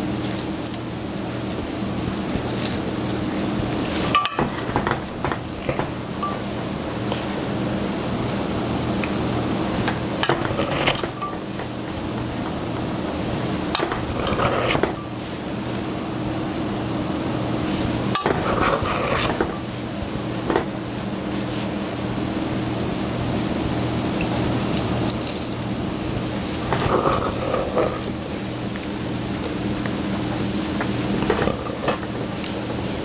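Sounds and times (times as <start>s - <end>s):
steady background hiss: 0.0s - 33.0s
metal spoon scraping steel bowl: 4.0s - 6.4s, 9.8s - 12.3s, 13.7s - 15.1s, 18.2s - 19.7s, 26.6s - 28.2s.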